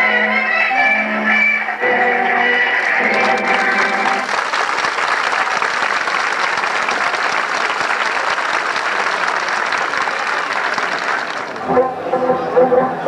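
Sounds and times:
large audience applauding: 2.8s - 11.7s.

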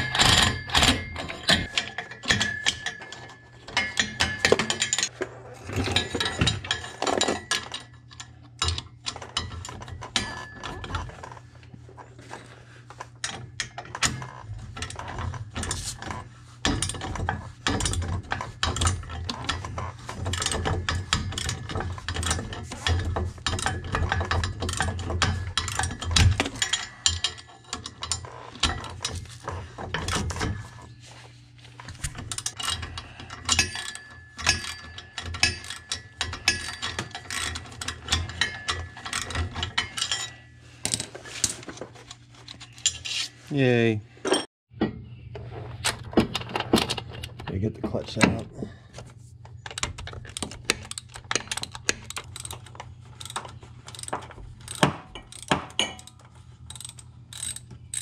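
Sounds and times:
ratchet wrench clicking: 49.7s - 58.0s.

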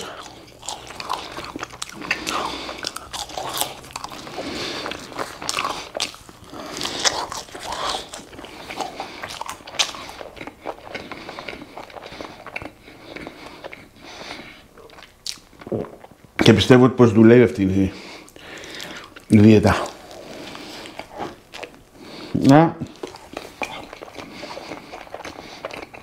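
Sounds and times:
person chewing food: 0.0s - 16.4s, 18.0s - 26.0s.

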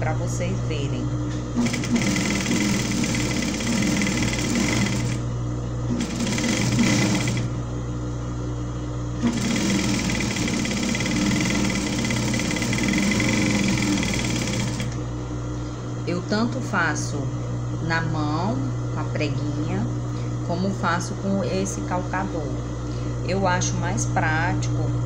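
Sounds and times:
sewing machine running: 1.6s - 5.2s, 5.9s - 7.5s, 9.2s - 15.0s.

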